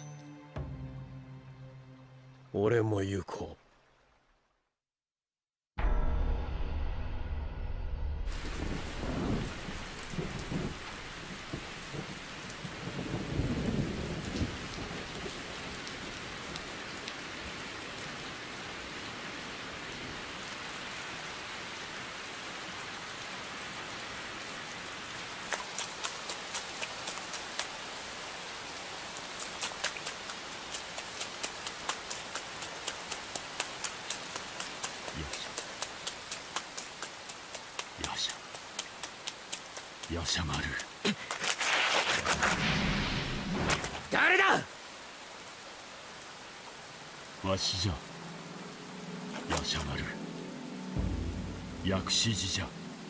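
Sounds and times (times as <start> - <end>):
low thunder rumbles: 5.8 - 16.2
heavy rain: 8.3 - 53.0
regular sharp taps: 29.4 - 41.4.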